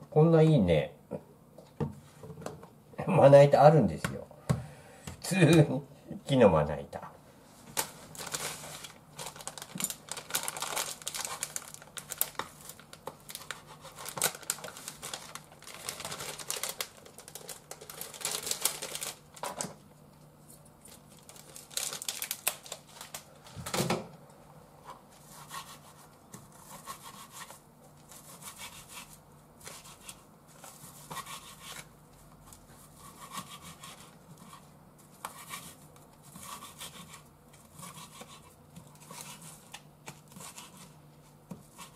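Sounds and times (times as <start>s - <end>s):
plastic packet crinkling: 7.8s - 19.8s, 20.9s - 23.5s.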